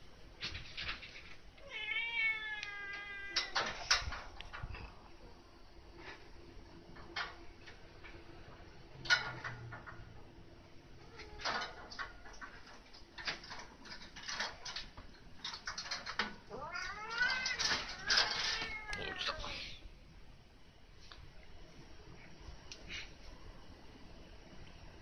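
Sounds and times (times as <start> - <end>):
cat meowing: 1.6 - 3.6, 16.5 - 19.8.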